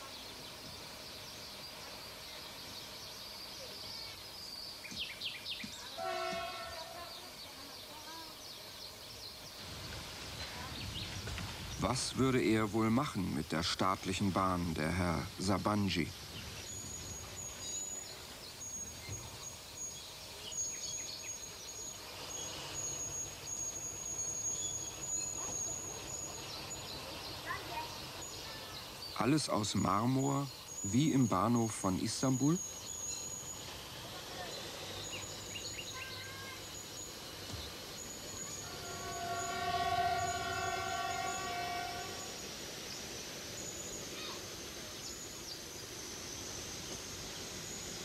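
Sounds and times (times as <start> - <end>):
birds chirping and calling: 0.0 - 42.1
nightingale singing: 0.0 - 48.0
steady outdoor background: 0.0 - 48.0
train horn blast: 5.9 - 7.3, 38.6 - 42.4
thin high steady tone: 11.7 - 48.0.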